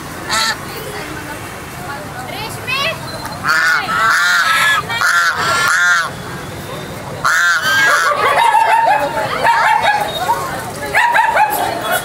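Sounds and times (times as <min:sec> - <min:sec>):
geese honking loudly: 0:00.3 - 0:00.6, 0:03.4 - 0:06.2, 0:07.2 - 0:10.0.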